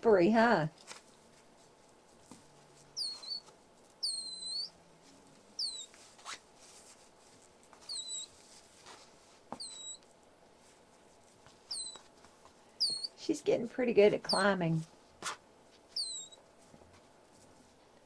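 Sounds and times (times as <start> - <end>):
monkey giving squeaky calls: 3.0 - 3.4, 4.0 - 4.7, 5.6 - 5.9, 7.9 - 8.3, 9.6 - 10.0, 11.7 - 12.0, 12.8 - 13.2, 16.0 - 16.4.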